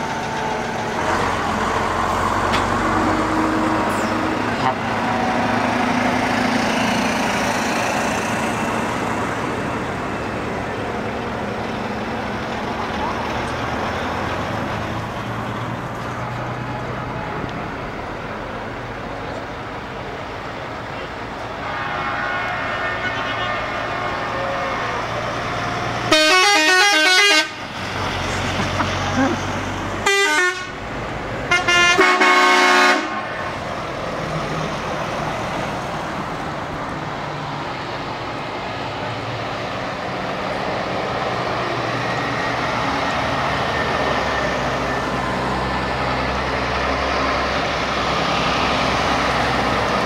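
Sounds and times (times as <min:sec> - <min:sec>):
truck diesel engines: 0:00.0 - 0:50.0
multi-tone truck horn tune: 0:03.9 - 0:05.0, 0:21.5 - 0:27.6, 0:30.0 - 0:30.8, 0:31.5 - 0:33.5
faint horn: 0:21.6 - 0:25.2.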